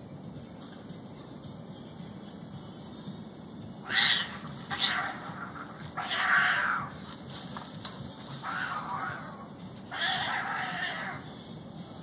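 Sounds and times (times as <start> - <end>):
cats yowling in a fight: 3.8 - 7.0, 8.4 - 11.2.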